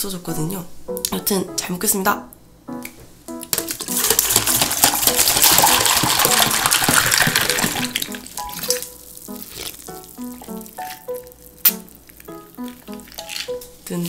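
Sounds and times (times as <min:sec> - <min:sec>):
soft background music: 0:00.0 - 0:14.0
drink pouring into a glass: 0:03.6 - 0:08.9.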